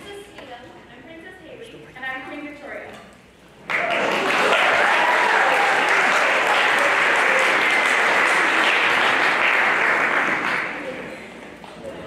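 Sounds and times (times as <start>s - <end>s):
audience applauding: 3.6s - 11.2s.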